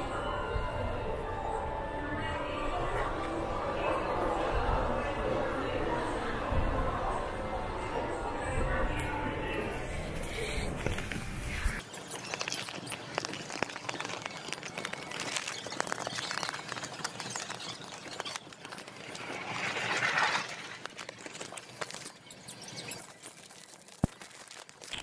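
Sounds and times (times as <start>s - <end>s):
paper package rustling: 11.8s - 25.0s.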